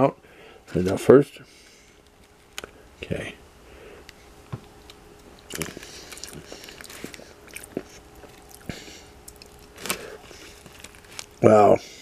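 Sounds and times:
man chewing food: 4.1 - 11.4.

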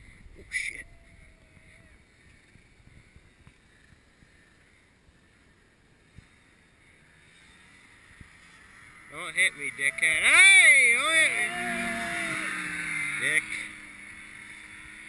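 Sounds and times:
distant snowmobile engine: 0.0 - 15.0
faint wind: 0.0 - 15.0.

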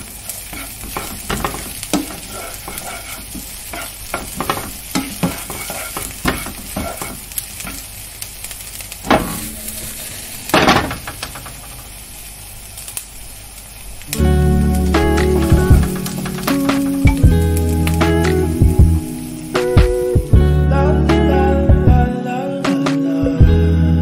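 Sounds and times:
chicken sizzling in oil: 0.0 - 20.5
loud bursts of hissing: 0.0 - 20.5
spoon scraping pan: 0.4 - 7.8.

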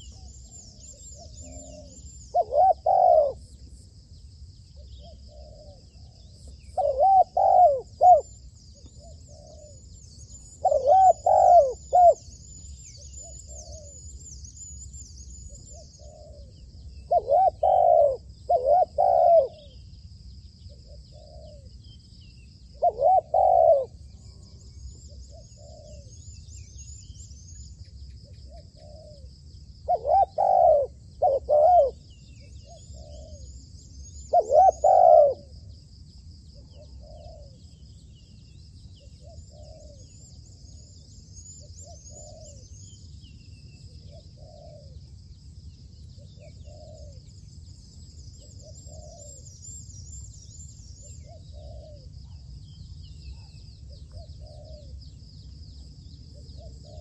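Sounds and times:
doves cooing: 0.0 - 3.5, 5.0 - 8.3, 10.4 - 12.2, 15.6 - 19.8, 22.8 - 24.0, 29.9 - 32.0, 34.3 - 35.6, 39.2 - 40.2, 44.0 - 45.0, 46.3 - 47.2, 48.4 - 49.8, 51.0 - 52.5, 53.3 - 55.0, 56.3 - 57.0
insects buzzing: 0.0 - 57.0
small bird chirps: 36.6 - 45.0, 46.0 - 57.0.

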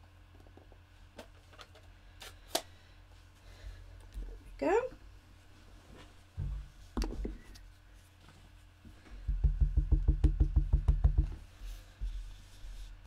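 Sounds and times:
brush tapping into ink pad: 9.3 - 11.4.

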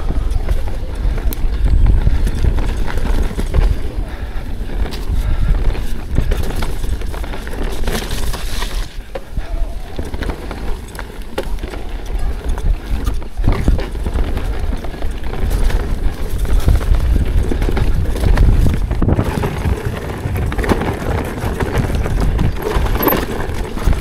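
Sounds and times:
bike tyres rolling over rock: 0.0 - 24.0
wind rumble on microphone: 0.0 - 24.0
chain and frame rattling: 9.8 - 24.0.

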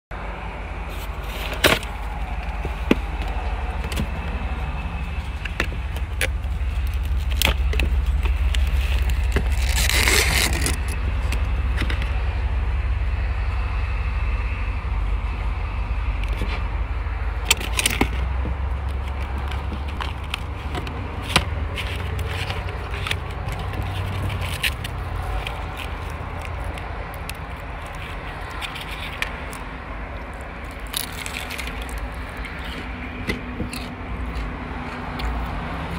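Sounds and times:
low vehicle rumble: 0.1 - 35.9
packaging rustling: 5.3 - 11.4, 17.6 - 29.7, 30.3 - 32.9.

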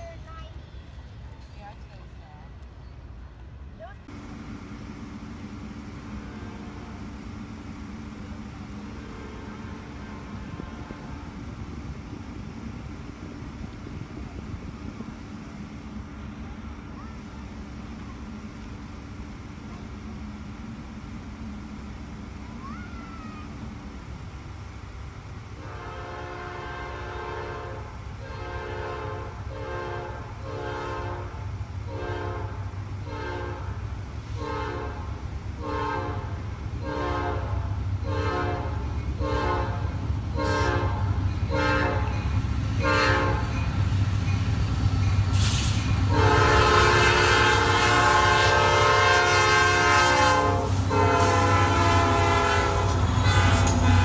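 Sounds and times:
diesel locomotive rumble: 0.0 - 54.0
locomotive horn toots and blasts: 6.1 - 7.0, 8.8 - 11.4, 25.5 - 42.2, 42.8 - 43.5, 46.1 - 54.0.

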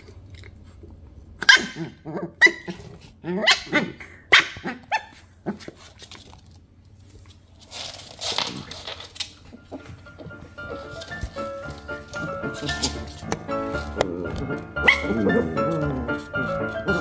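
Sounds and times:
dogs barking yelping and growling: 1.4 - 5.6, 12.4 - 17.0
rustling scuffle: 5.5 - 17.0.

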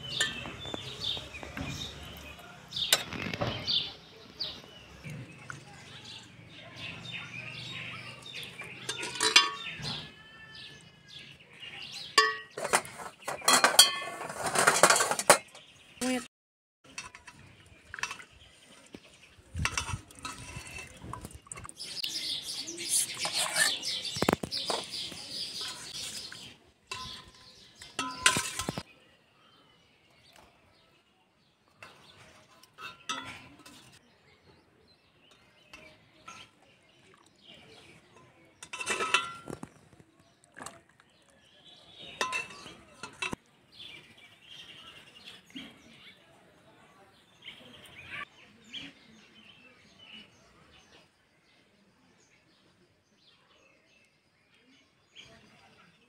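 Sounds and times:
ladle clinking against pots: 0.0 - 0.8, 8.4 - 10.5, 12.1 - 15.7, 16.9 - 18.4, 19.6 - 21.8, 23.0 - 28.9, 31.8 - 34.0, 35.3 - 37.2, 37.9 - 39.8, 42.0 - 43.4.

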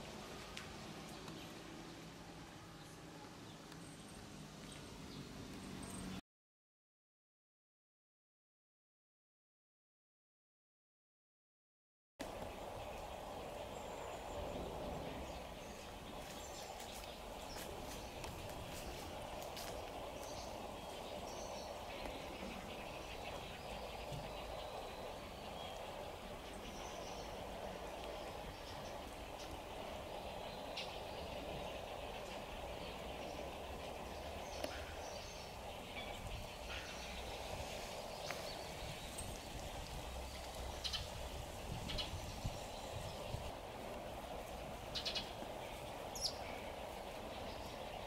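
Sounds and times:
steady background hum: 12.2 - 48.0.

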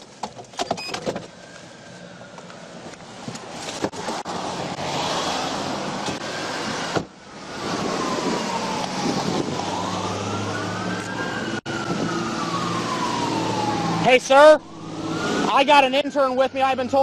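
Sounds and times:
police sirens wailing: 4.3 - 17.0.

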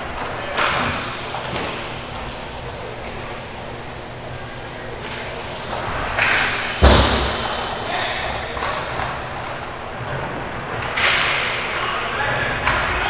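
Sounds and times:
roller skating game noise: 0.0 - 13.0
puck thump against boards: 5.7 - 7.6.

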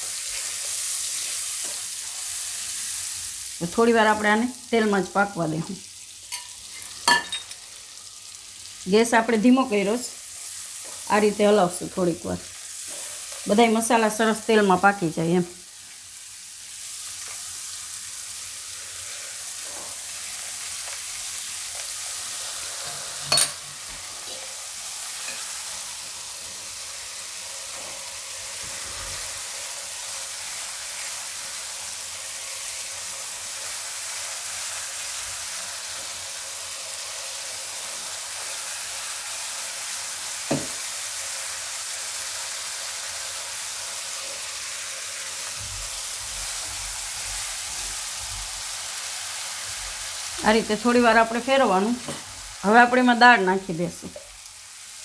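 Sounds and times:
spatula stirring in pan: 0.0 - 3.0, 12.6 - 13.6, 18.4 - 26.6
spices sizzling in hot oil: 0.0 - 55.0.

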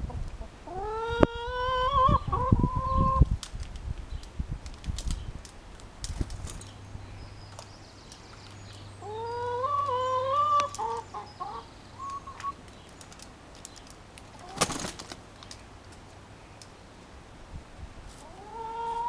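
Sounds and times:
hens clucking: 0.0 - 3.3, 9.0 - 12.6, 14.3 - 15.0, 18.2 - 19.0.

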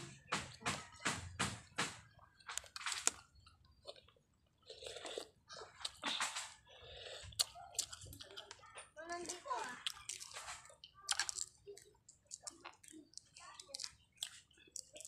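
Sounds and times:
chewing and slurping: 2.1 - 15.0.

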